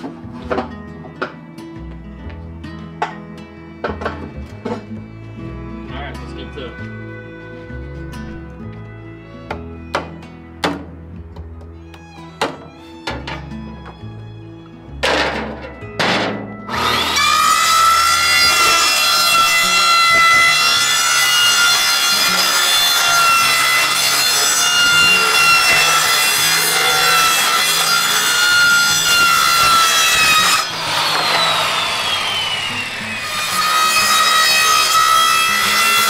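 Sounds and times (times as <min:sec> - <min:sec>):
circular saw cutting plastic: 0:16.7 - 0:36.0
saw blade spinning down: 0:16.7 - 0:36.0.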